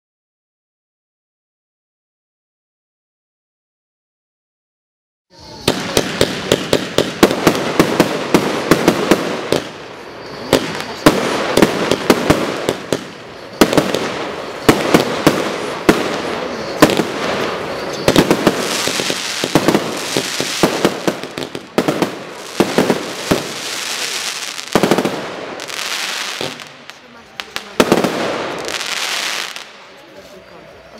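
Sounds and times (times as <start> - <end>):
firework hiss: 5.3 - 30.6
firework cake firing sharp shots: 5.5 - 29.8.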